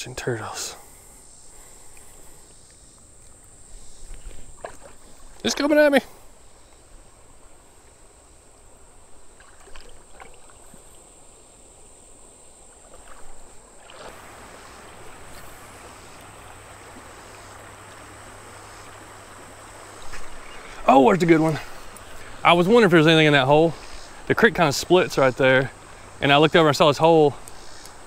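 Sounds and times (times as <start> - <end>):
creek water running over rocks: 0.0 - 28.0
small splashes and knocks: 4.0 - 5.6, 9.3 - 11.1, 12.7 - 18.1, 19.9 - 22.4.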